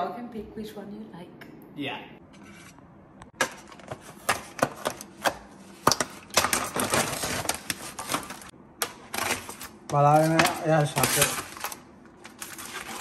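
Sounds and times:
plastic crinkling as torn: 0:09.1 - 0:13.0.

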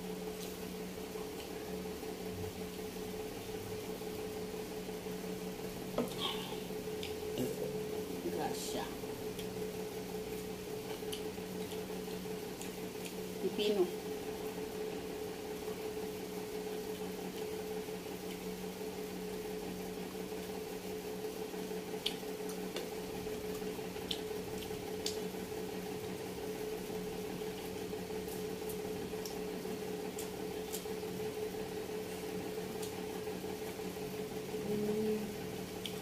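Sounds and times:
steady hum with constant tone: 0:00.0 - 0:36.0
person chewing food: 0:10.4 - 0:13.3, 0:21.9 - 0:25.3, 0:30.1 - 0:31.0.

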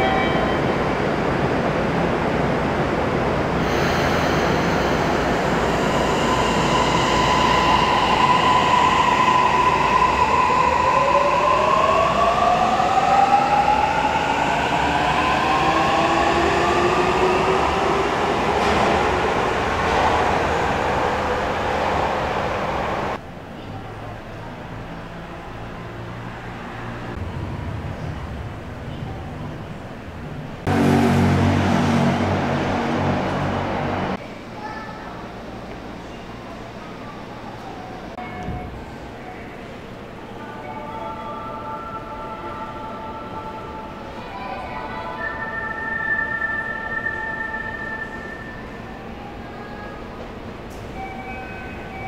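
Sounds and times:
train running noise: 0:00.0 - 0:23.5.

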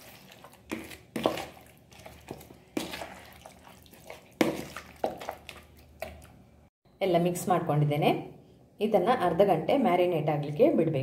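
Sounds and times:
spoon squelching through marinade: 0:00.0 - 0:06.4.

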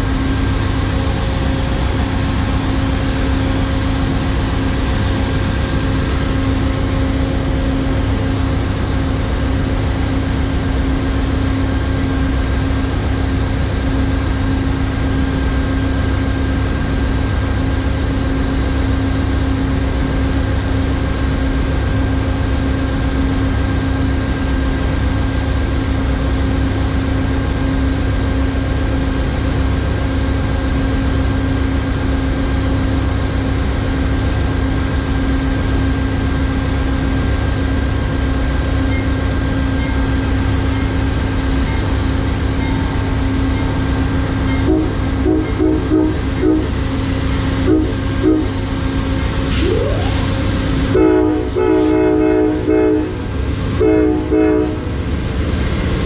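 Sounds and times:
diesel locomotive idling: 0:00.0 - 0:56.0.

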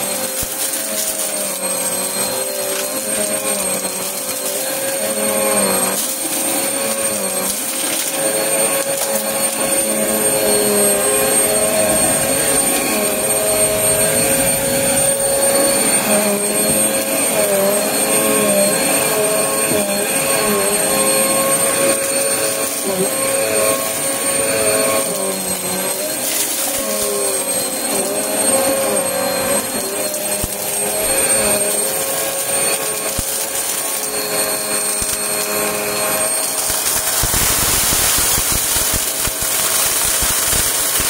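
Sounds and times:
debris ticking in vacuum: 0:00.0 - 0:13.4, 0:21.9 - 0:29.0, 0:29.6 - 0:41.0
vacuum cleaner running over carpet: 0:00.0 - 0:41.0.

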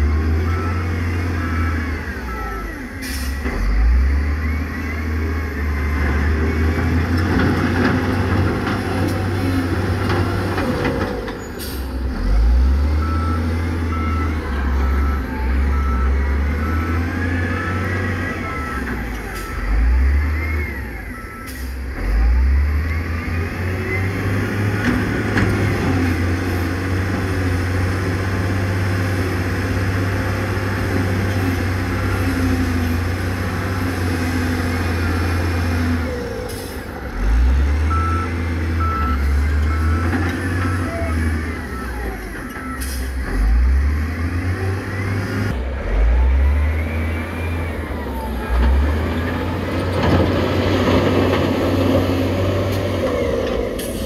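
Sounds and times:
reversing alarm beeping: 0:00.0 - 0:07.2, 0:11.4 - 0:25.1, 0:32.0 - 0:49.2
diesel truck engines revving: 0:00.0 - 0:54.0
air brake hisses: 0:03.0 - 0:03.4.

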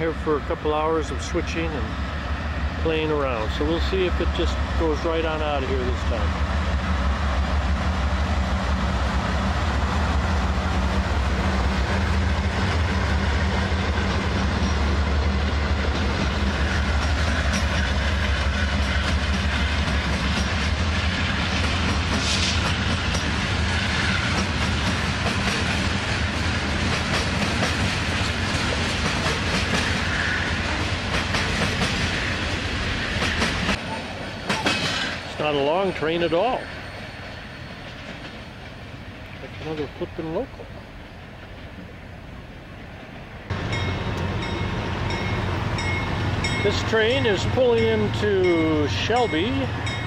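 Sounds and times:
diesel locomotive engines droning: 0:00.0 - 0:50.0
train wheels clattering over rail joints: 0:11.0 - 0:32.3, 0:34.4 - 0:35.7.

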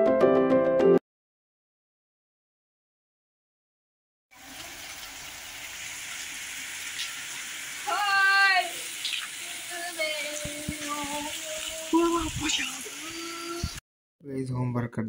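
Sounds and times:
heavy rain on concrete: 0:04.3 - 0:13.8
water streaming from spouts: 0:04.3 - 0:13.8
person calling out loudly: 0:10.9 - 0:13.8.

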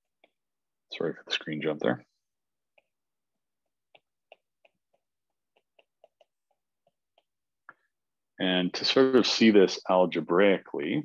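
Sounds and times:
stylus tapping on glass screen: 0:03.6 - 0:07.9.

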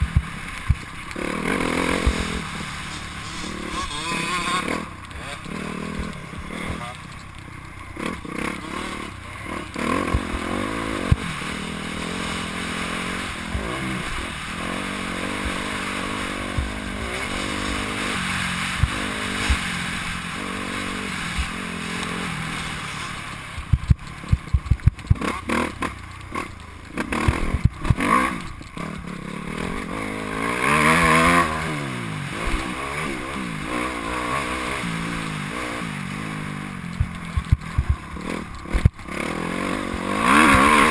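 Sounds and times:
knocks and thumps from rough ground: 0:00.0 - 0:14.0, 0:15.3 - 0:29.9, 0:34.5 - 0:40.9
motocross bike engine revving: 0:00.0 - 0:40.9
wind noise on microphone: 0:23.6 - 0:25.3, 0:36.9 - 0:39.1.

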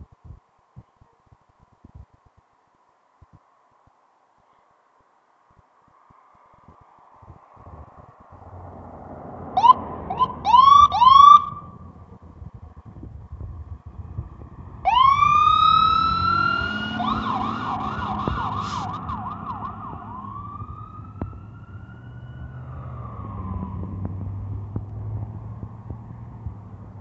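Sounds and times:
truck engine rumbling: 0:07.6 - 0:27.0
fire engine siren: 0:09.5 - 0:11.9, 0:14.7 - 0:24.6.

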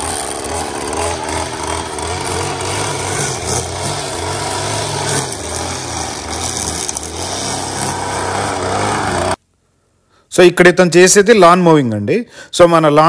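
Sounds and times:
string trimmer cutting grass: 0:00.0 - 0:09.4.

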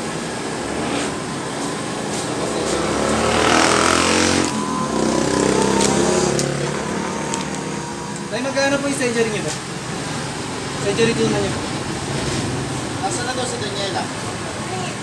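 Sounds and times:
motorcycle passing: 0:00.0 - 0:14.1.

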